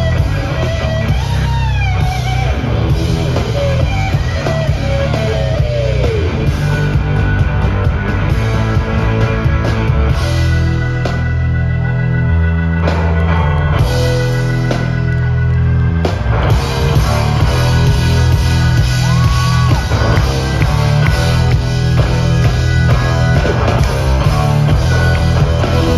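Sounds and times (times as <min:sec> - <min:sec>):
live rock band playing: 0:00.0 - 0:25.9
sliding bending guitar notes: 0:00.0 - 0:25.9.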